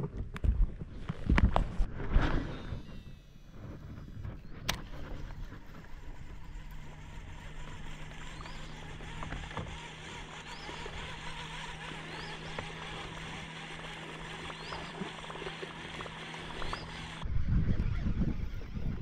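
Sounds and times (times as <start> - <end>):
wind rumble on microphone: 0.0 - 7.0, 15.8 - 19.0
boat motor humming: 0.0 - 19.0.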